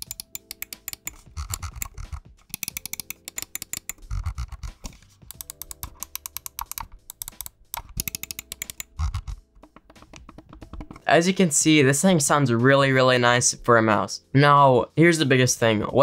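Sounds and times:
scroll-wheel ticks: 0:00.0 - 0:11.0.

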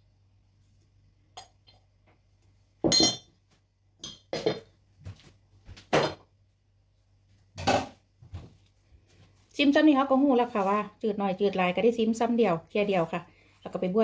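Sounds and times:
kitchenware knocking and clinking: 0:02.8 - 0:03.3, 0:05.9 - 0:06.3, 0:07.6 - 0:08.0.

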